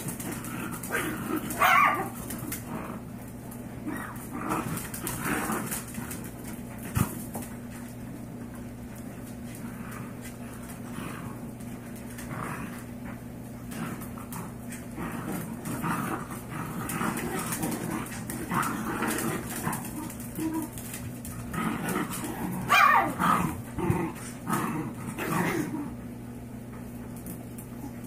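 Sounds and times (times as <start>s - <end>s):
dog yelp: 1.6s - 2.1s, 22.7s - 23.2s.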